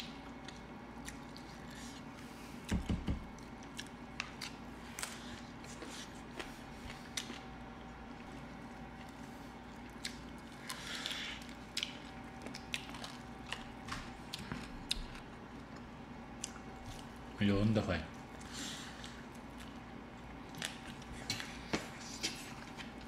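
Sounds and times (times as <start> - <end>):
wet chewing: 0.1 - 17.3, 18.1 - 23.0.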